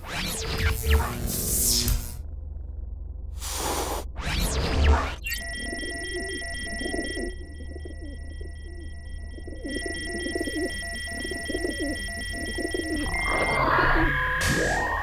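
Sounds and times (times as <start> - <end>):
high electronic tones: 4.3 - 14.4
faint pulsing beep: 5.1 - 14.2.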